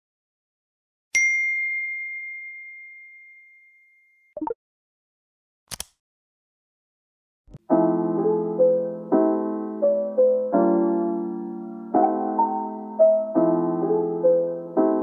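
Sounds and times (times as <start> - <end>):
sharp click: 5.7 - 6.0.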